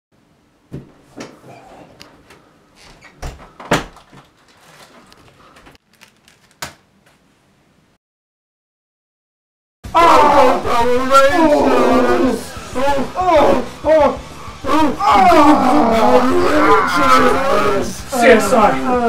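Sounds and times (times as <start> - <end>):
door opening with knocks and clicks: 0.7 - 4.4.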